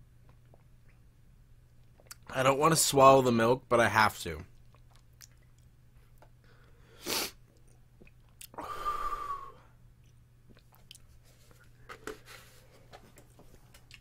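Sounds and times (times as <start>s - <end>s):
faint low electrical hum: 0.0s - 14.0s
man blowing out breath: 8.6s - 9.7s.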